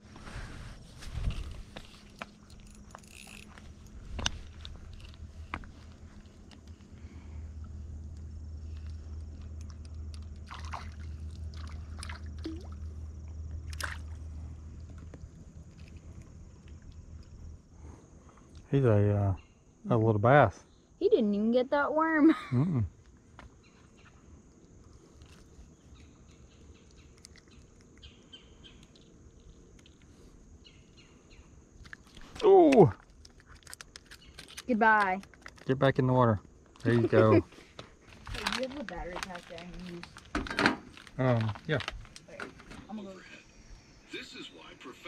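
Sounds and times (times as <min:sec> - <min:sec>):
steady low rumble: 0:00.0 - 0:18.9
fish splashing at water surface: 0:10.2 - 0:13.0, 0:13.7 - 0:14.3.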